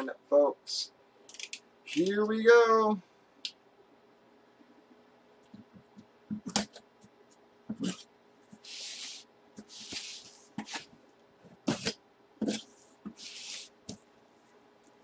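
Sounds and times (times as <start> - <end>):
box cutter slitting tape: 11.7 - 12.6.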